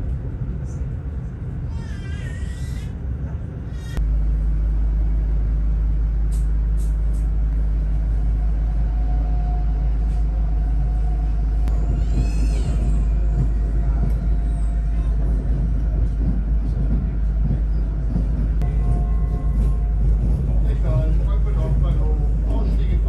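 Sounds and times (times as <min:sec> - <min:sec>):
train rumbling: 0:00.0 - 0:23.0
high train squeal: 0:08.2 - 0:22.9.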